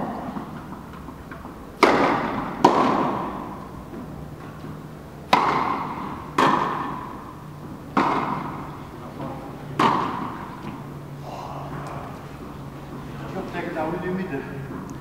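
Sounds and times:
tennis ball struck by racket: 0:00.1 - 0:04.1, 0:05.2 - 0:10.9
ball bouncing on court: 0:01.8 - 0:03.5, 0:05.3 - 0:07.1, 0:07.9 - 0:10.8.

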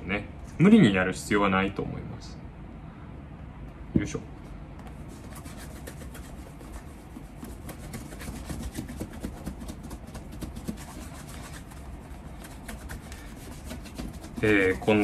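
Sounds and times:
cloth rubbing leather shoe: 0:04.9 - 0:15.0.

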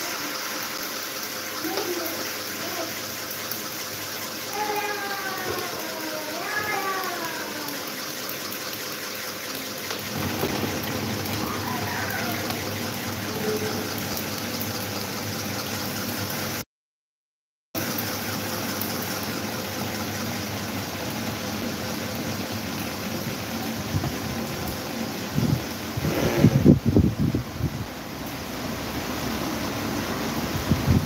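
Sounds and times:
electric fans running: 0:00.0 - 0:16.6, 0:17.8 - 0:31.0
wind buffeting microphone: 0:25.3 - 0:27.9.

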